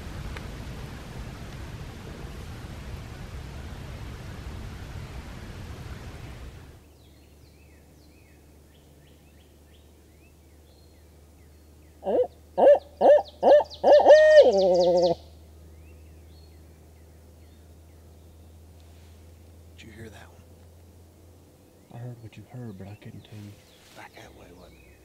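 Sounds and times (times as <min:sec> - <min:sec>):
steady rushing noise: 0:00.0 - 0:06.9
owl hooting: 0:12.0 - 0:15.3.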